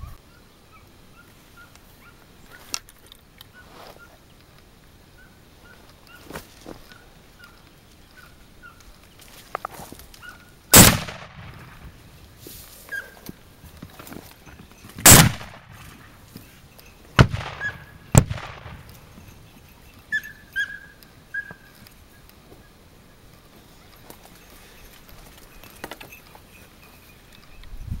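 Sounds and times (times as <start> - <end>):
rifle shot with echo: 10.7 - 12.0, 15.0 - 15.8, 17.2 - 19.1
distant animal calls: 14.4 - 22.8.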